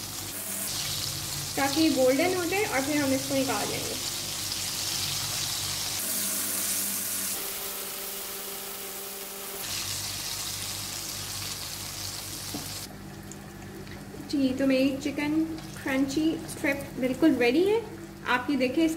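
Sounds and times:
chicken deep-frying in hot oil: 0:00.0 - 0:14.4.

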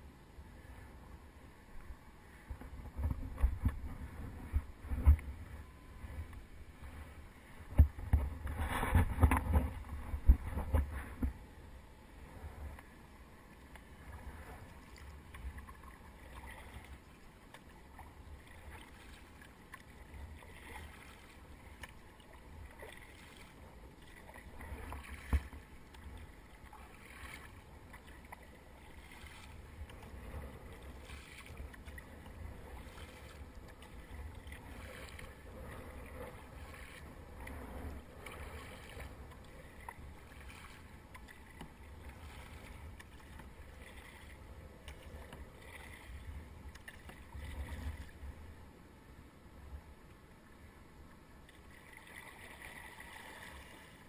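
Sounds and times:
water lapping on hull: 0:02.3 - 0:11.4, 0:12.1 - 0:48.6, 0:51.4 - 0:54.0
paddle strokes splashing: 0:12.2 - 0:48.4, 0:51.4 - 0:54.0.

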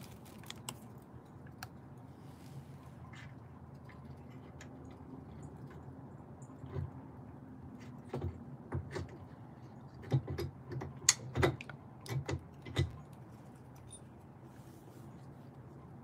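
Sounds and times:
clicks and knocks of hard parts: 0:07.8 - 0:09.3, 0:10.0 - 0:13.0.

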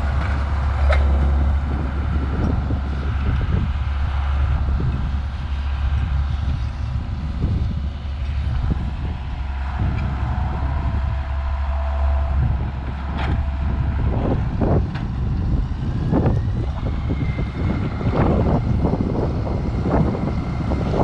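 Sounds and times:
knocks and clatter: 0:00.0 - 0:02.6
steady whine: 0:00.0 - 0:21.0
tractor diesel engine droning: 0:00.0 - 0:21.0.

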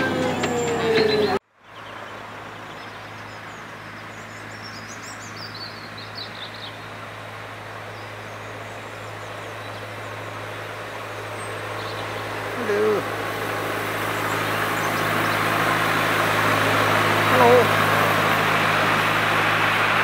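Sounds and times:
miniature railway locomotive running: 0:00.0 - 0:01.4, 0:06.9 - 0:20.0
birds chirping: 0:00.0 - 0:20.0.

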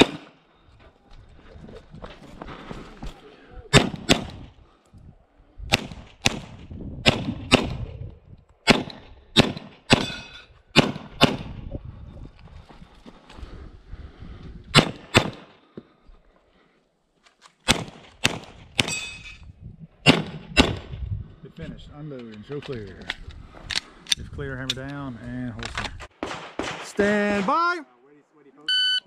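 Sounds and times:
pistol shots: 0:00.0 - 0:00.4, 0:03.7 - 0:04.5, 0:05.7 - 0:07.8, 0:08.6 - 0:10.2, 0:10.8 - 0:11.5, 0:14.8 - 0:15.5, 0:17.7 - 0:19.1, 0:20.0 - 0:20.9, 0:26.2 - 0:27.6.

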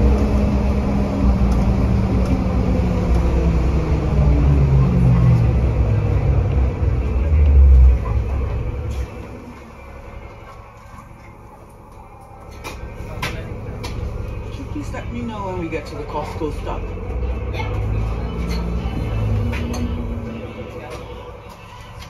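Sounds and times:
bus diesel engine rumbling: 0:00.0 - 0:22.0.

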